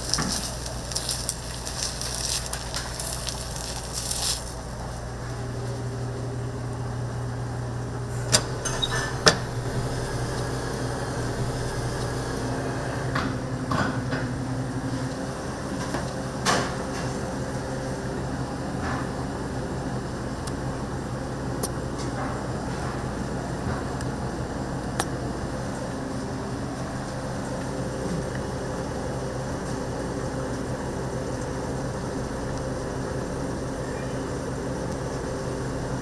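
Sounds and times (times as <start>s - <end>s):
kitchen equipment humming: 0.0s - 36.0s
utensils clinking: 8.3s - 10.6s.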